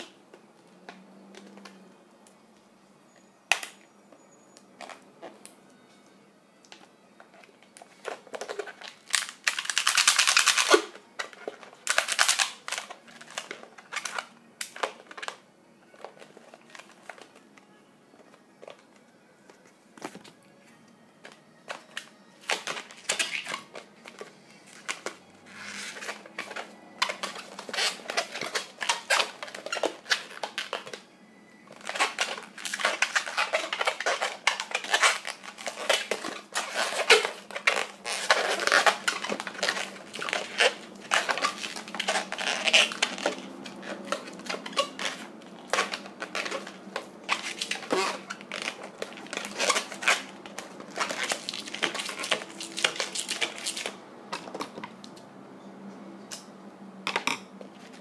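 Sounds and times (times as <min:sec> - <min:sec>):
balloon squeaking and creaking: 0:07.5 - 0:15.4, 0:21.6 - 0:31.0, 0:31.7 - 0:54.9.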